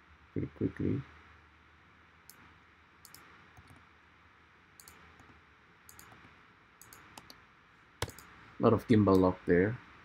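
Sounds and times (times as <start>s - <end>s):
mouse and keyboard clicks: 3.0s - 3.8s, 4.8s - 5.3s, 5.9s - 7.4s, 8.0s - 8.3s.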